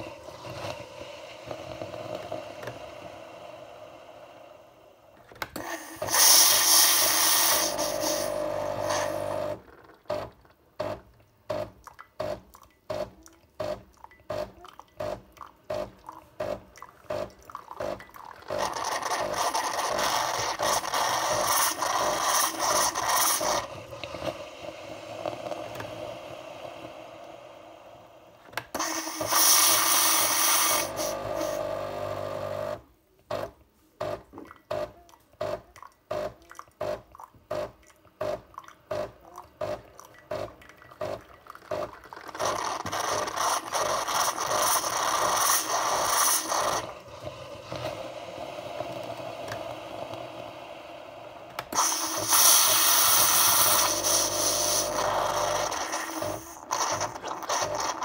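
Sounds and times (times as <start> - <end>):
water rushing into jug: 5.6 - 10.4, 12.3 - 27.5, 36.6 - 50.2, 51.5 - 58.0.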